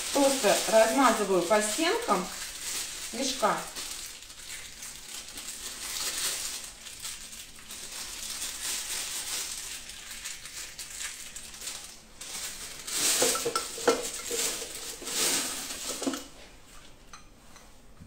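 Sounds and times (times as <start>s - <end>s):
plastic piping bag crinkling: 0.0s - 16.3s.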